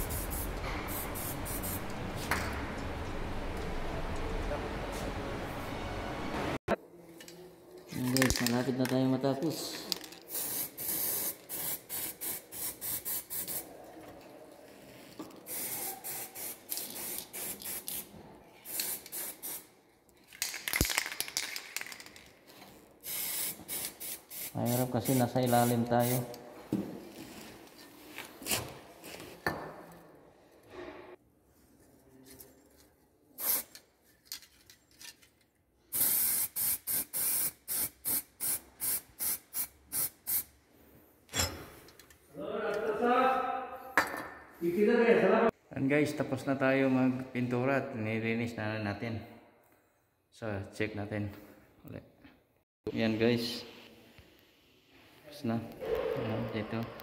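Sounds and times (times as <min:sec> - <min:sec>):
spray can hissing: 0:00.0 - 0:02.0, 0:10.3 - 0:13.6, 0:15.5 - 0:19.7, 0:23.0 - 0:26.3, 0:33.4 - 0:33.8, 0:35.9 - 0:40.5.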